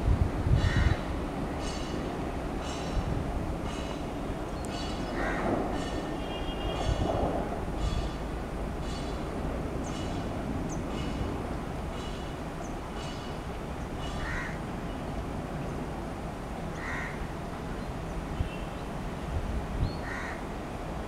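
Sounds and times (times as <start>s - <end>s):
distant diesel locomotive rumble: 0.0s - 21.0s
crows cawing: 0.6s - 2.0s, 4.7s - 6.2s, 14.0s - 14.6s, 16.8s - 17.2s, 20.0s - 20.4s
bird calling: 0.6s - 7.1s, 7.7s - 15.0s.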